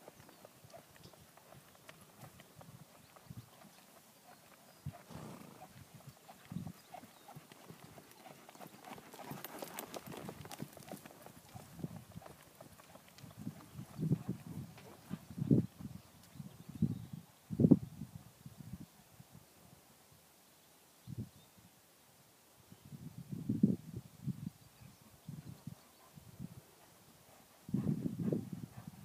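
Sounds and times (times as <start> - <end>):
horse hoofbeats on sand: 0.0 - 15.7.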